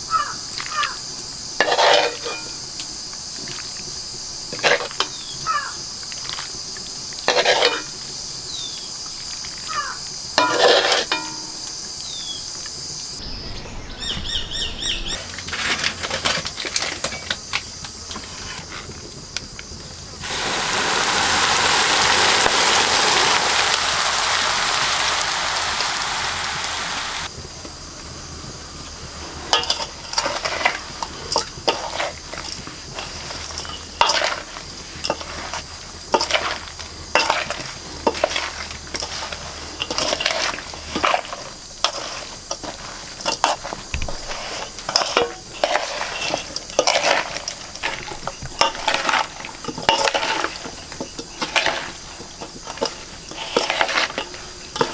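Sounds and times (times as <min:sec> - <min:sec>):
high insect drone: 0:00.0 - 0:54.9
hot oil sizzling: 0:00.0 - 0:54.9
bird chirps: 0:13.2 - 0:15.4
hands mixing in steel bowl: 0:29.6 - 0:54.9.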